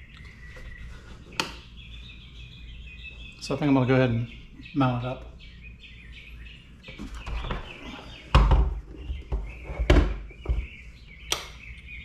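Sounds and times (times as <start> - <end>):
birds chirping: 0.0 - 12.0
knocks and thumps of handling: 6.9 - 10.8.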